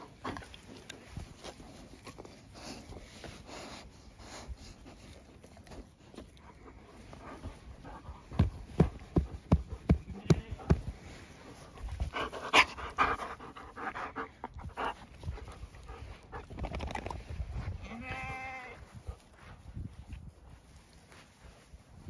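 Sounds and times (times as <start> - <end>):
dog panting and snuffling: 0.0 - 17.8, 18.7 - 22.0
bleat-like animal call: 17.8 - 18.8.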